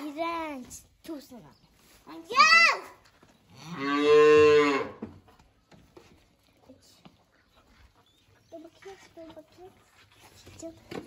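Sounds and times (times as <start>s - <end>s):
calf mooing: 3.6s - 5.0s
faint knocks and rustling: 8.7s - 11.0s.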